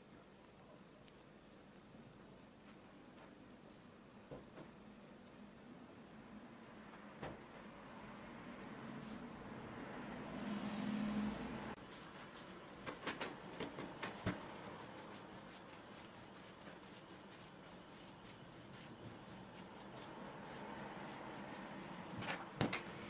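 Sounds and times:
hands rolling dough: 0:11.8 - 0:23.0.

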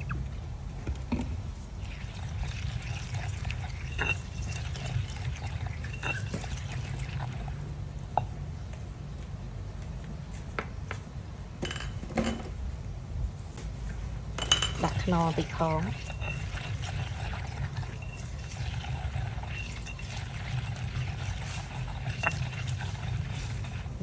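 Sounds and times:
steady low hum: 0:00.0 - 0:24.0
stone pestle stirring paste: 0:15.7 - 0:24.0.

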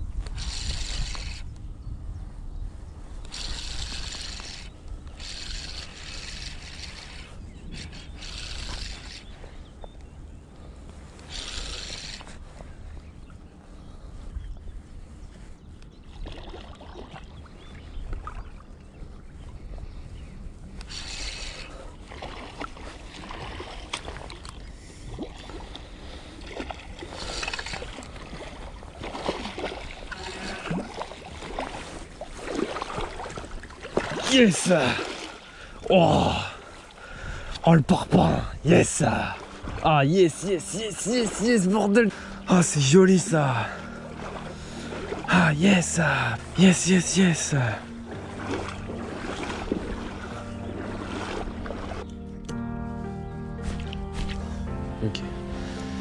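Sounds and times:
wind rumble: 0:00.0 - 0:16.2, 0:47.6 - 0:53.2
water lapping and splashing: 0:00.2 - 0:01.5, 0:03.2 - 0:09.7, 0:10.6 - 0:14.3, 0:15.0 - 0:52.5
fishing reel whirring: 0:00.3 - 0:01.5, 0:03.2 - 0:09.4, 0:11.2 - 0:12.4, 0:20.8 - 0:21.8, 0:27.1 - 0:28.1, 0:48.4 - 0:50.4
line scraping: 0:00.3 - 0:01.5, 0:03.2 - 0:09.4, 0:11.2 - 0:12.5, 0:20.8 - 0:21.9, 0:27.1 - 0:28.1
small clicks: 0:03.2 - 0:09.3.

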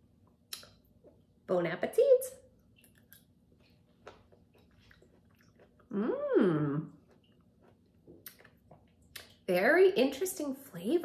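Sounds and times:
woman chewing with mouth clicks: 0:02.6 - 0:09.4
woman humming: 0:05.9 - 0:07.0.

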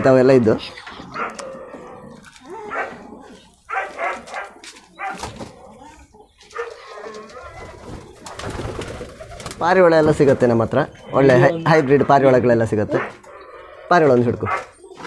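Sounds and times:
dog barking: 0:01.1 - 0:01.4, 0:02.6 - 0:03.0, 0:03.7 - 0:05.3, 0:06.5 - 0:07.5, 0:12.9 - 0:13.3, 0:14.4 - 0:14.8.

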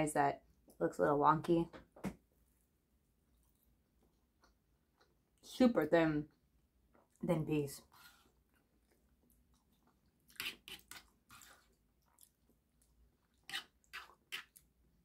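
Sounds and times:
chewing food: 0:03.2 - 0:05.5, 0:08.2 - 0:15.0
fork scraping food on plate: 0:10.3 - 0:11.7, 0:13.4 - 0:14.6.

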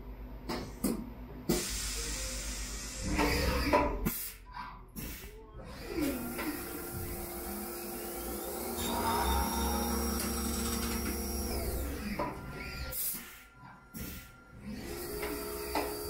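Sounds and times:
lathe spindle whine: 0:05.8 - 0:13.8.

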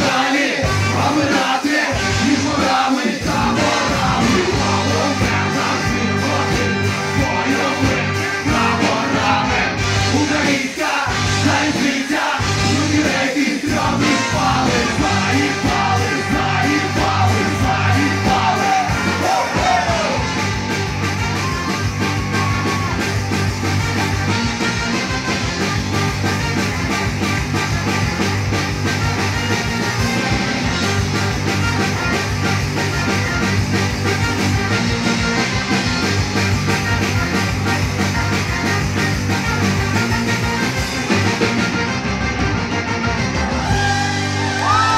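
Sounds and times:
man singing and shouting: 0:00.0 - 0:20.3
drums: 0:00.0 - 0:44.9
live rock band with brass: 0:00.0 - 0:44.9
trombone: 0:00.0 - 0:44.9
distorted electric guitar: 0:03.2 - 0:44.9.

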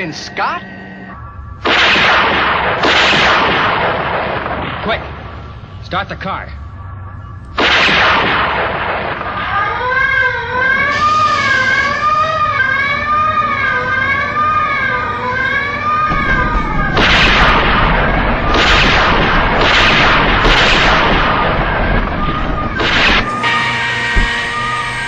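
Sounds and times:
wailing alarm tone: 0:00.0 - 0:02.8, 0:09.2 - 0:25.0
loud explosions: 0:01.6 - 0:05.7, 0:07.6 - 0:10.1, 0:16.0 - 0:25.0.

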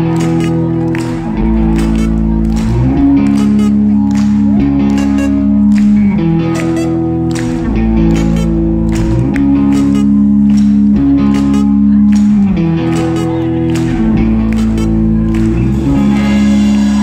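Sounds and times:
guitar and bass chords: 0:00.0 - 0:17.0
drum and cymbal hits: 0:15.7 - 0:17.0.

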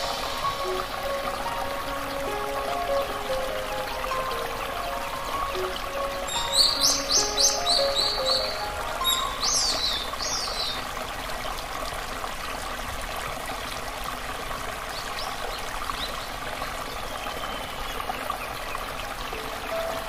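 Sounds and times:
stream water running: 0:00.0 - 0:20.0
bird chirping: 0:04.2 - 0:10.8.

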